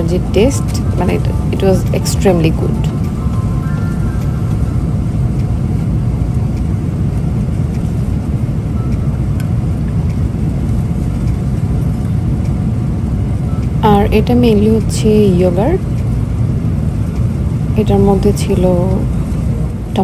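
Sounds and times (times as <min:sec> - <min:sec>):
airliner cabin rumble: 0:00.0 - 0:20.0.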